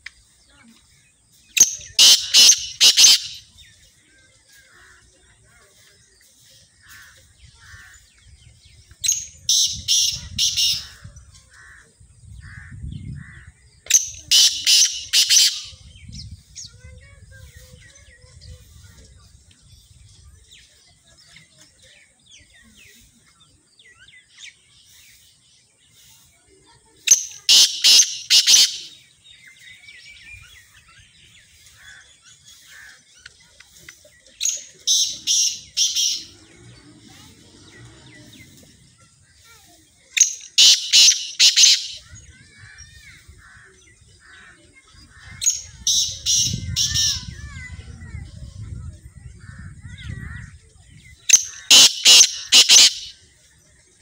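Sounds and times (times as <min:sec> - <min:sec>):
francolin calling: 0:01.7 - 0:03.5.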